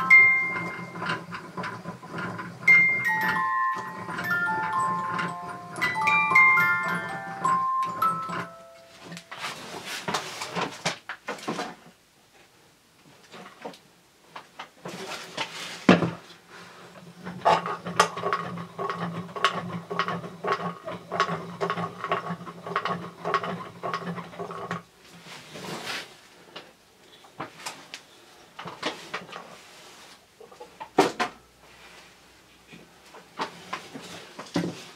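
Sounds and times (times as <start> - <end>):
music box notes: 0.0 - 1.5, 2.4 - 9.8
wooden mechanism clacking: 0.0 - 11.9, 17.2 - 24.9.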